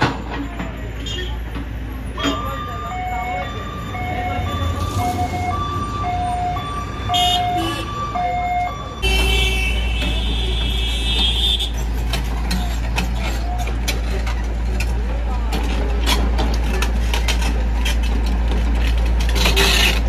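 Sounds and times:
diesel engines running: 0:00.0 - 0:20.0
two-tone vehicle warning alarm: 0:02.2 - 0:11.6.

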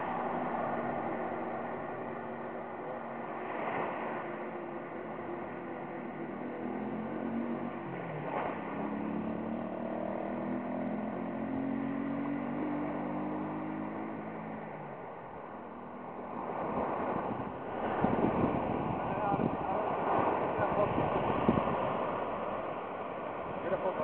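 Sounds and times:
vehicle engine passing: 0:00.0 - 0:24.0
wind on microphone: 0:14.8 - 0:24.0.

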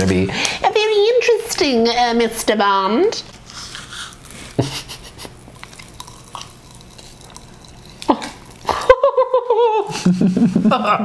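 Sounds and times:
popping candy crackling: 0:03.1 - 0:08.9.

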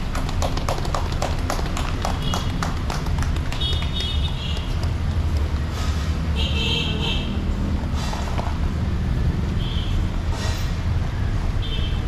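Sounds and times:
footsteps on pavement: 0:00.0 - 0:06.0.

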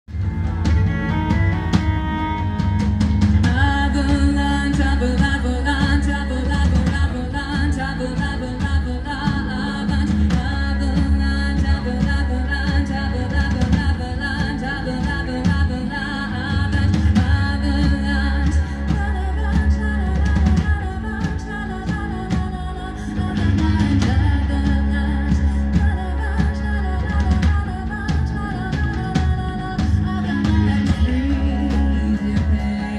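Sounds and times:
live metal band playing: 0:00.1 - 0:32.9
person singing: 0:03.4 - 0:32.9.

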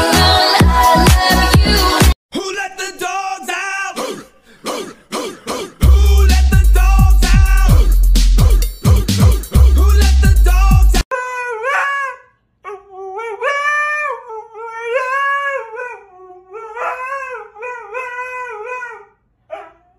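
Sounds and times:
bass-heavy music: 0:00.0 - 0:02.2, 0:05.8 - 0:11.0
dog howling: 0:11.2 - 0:19.9.

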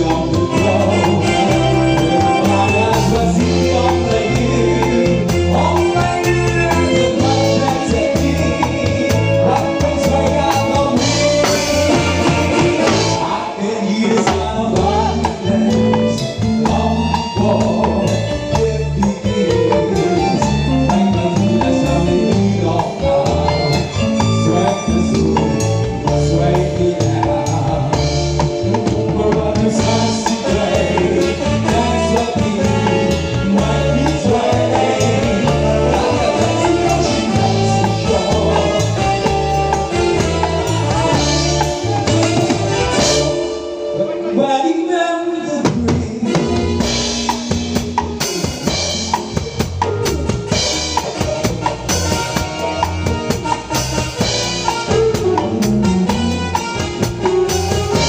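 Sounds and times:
drum kit and cymbals: 0:00.0 - 0:44.4, 0:45.5 - 0:58.0
live band music: 0:00.0 - 0:58.0
person singing: 0:00.0 - 0:58.0
steady bass beat: 0:46.7 - 0:58.0.

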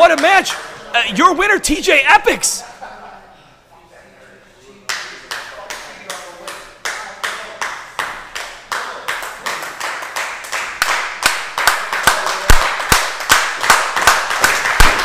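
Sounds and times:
audience clapping in rhythm: 0:00.0 - 0:01.2, 0:04.9 - 0:15.0.

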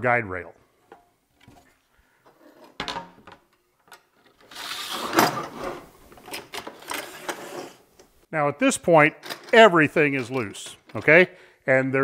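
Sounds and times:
metal scraping slide: 0:04.4 - 0:06.0, 0:06.6 - 0:07.9.

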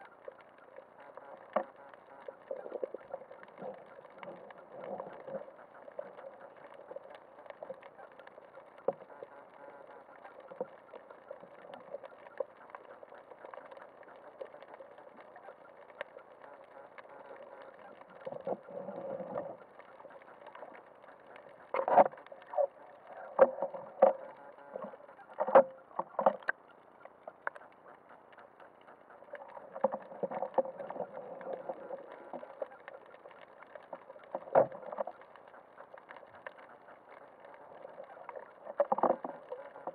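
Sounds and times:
muffled underwater noise: 0:00.0 - 0:39.9
rumbling water movement: 0:00.0 - 0:39.9.

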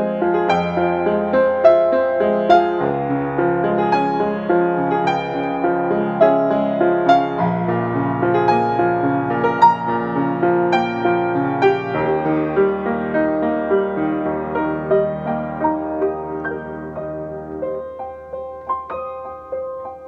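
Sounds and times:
slow gentle piano melody: 0:00.0 - 0:20.0.

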